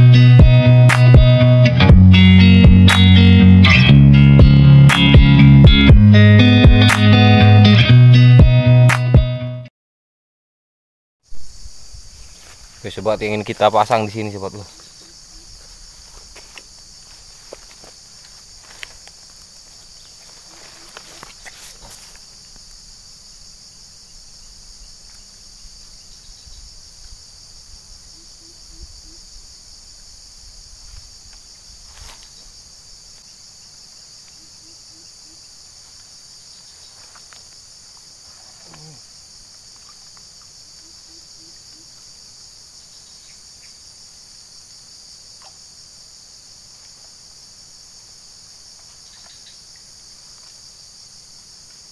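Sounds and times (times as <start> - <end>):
high-pitched insect chorus: 11.2 - 51.9.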